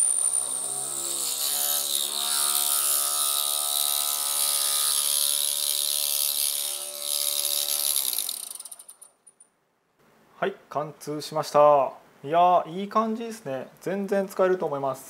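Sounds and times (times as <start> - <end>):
drill cutting metal: 0.0 - 9.0.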